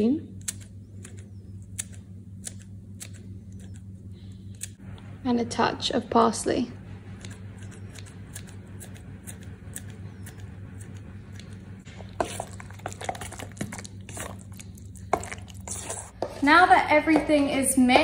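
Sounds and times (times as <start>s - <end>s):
steady low hum: 0.0s - 18.0s
scissors snipping herbs: 0.4s - 3.9s, 4.5s - 4.8s, 7.2s - 11.6s
spoon scraping metal bowl: 12.0s - 14.5s, 15.1s - 16.4s.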